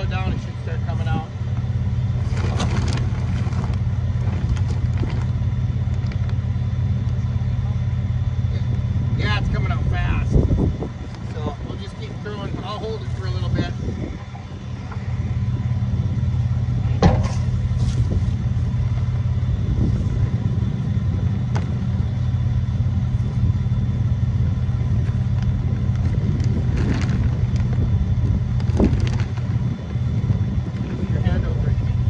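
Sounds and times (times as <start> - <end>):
low engine rumble: 0.0 - 32.0
knocks and rustles of tyres: 2.1 - 6.4, 16.4 - 19.2, 21.4 - 22.0, 24.9 - 29.8.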